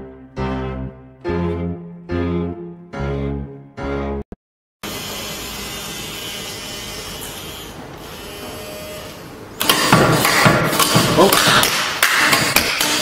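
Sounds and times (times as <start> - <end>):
sharp knocks and clatter: 9.6 - 13.0.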